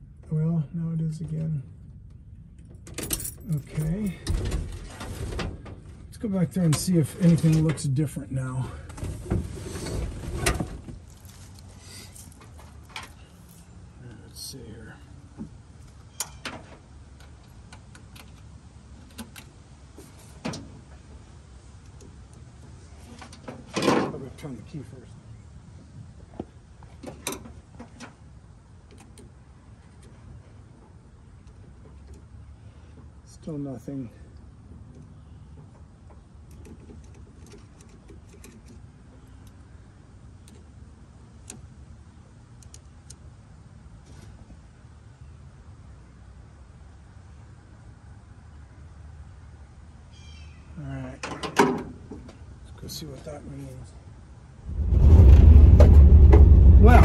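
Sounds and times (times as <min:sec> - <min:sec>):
rustle: 0:03.0 - 0:06.2, 0:06.9 - 0:24.6, 0:35.4 - 0:45.7
low steady rumble: 0:54.5 - 0:57.0.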